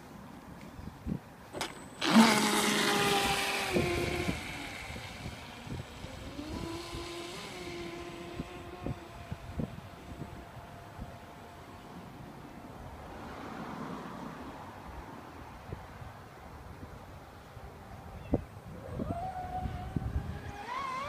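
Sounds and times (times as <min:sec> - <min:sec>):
high-pitched electric motor whine: 0:01.6 - 0:11.8, 0:18.7 - 0:21.0.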